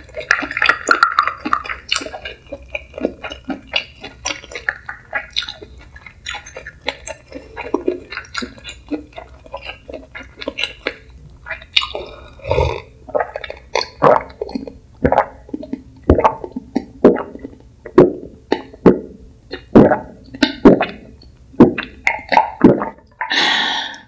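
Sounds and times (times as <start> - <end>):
person gulping: 0.0 - 24.0
breathy rush of air: 23.3 - 24.0.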